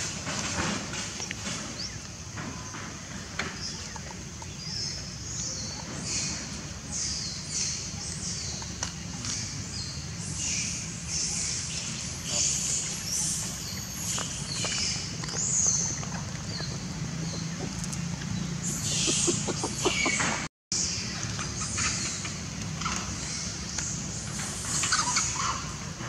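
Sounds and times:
monkey squealing calls: 0:18.7 - 0:20.4.

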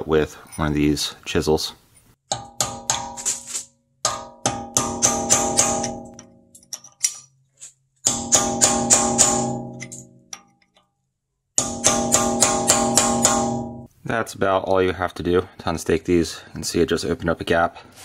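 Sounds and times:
hammer striking metal chisel: 0:02.3 - 0:07.4, 0:08.0 - 0:11.0, 0:11.6 - 0:13.9.

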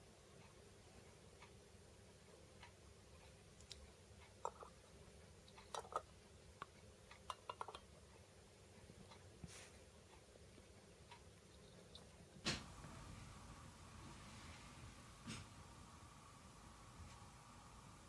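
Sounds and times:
metal tins clicking together: 0:07.3 - 0:07.8.

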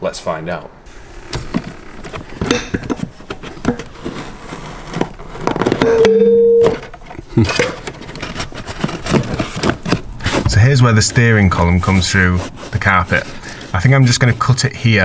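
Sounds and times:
carpet rustling and scraping: 0:00.9 - 0:06.0, 0:06.7 - 0:15.0
short high tone: 0:05.8 - 0:06.8.

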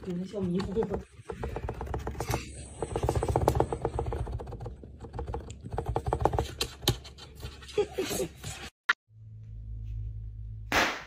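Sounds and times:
kitten claws scratching cardboard: 0:00.0 - 0:07.7.

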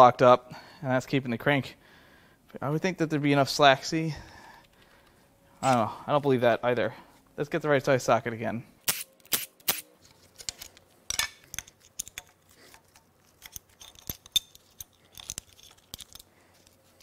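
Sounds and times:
metal chain clinking and rattling: 0:11.1 - 0:16.8.

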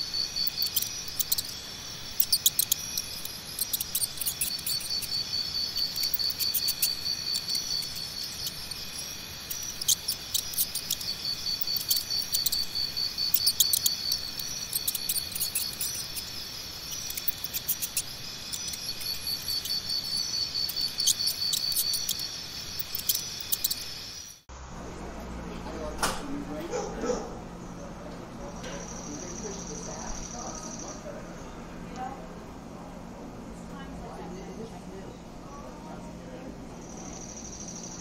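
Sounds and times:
sharp ticks: 0:00.0 - 0:24.0
crickets chirping: 0:00.0 - 0:25.0, 0:26.8 - 0:38.0.

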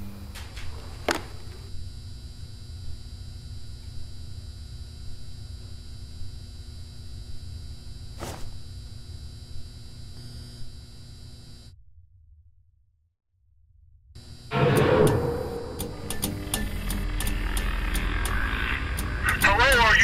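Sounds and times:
faint electrical hum: 0:00.0 - 0:11.8
low rumble: 0:11.8 - 0:19.2.

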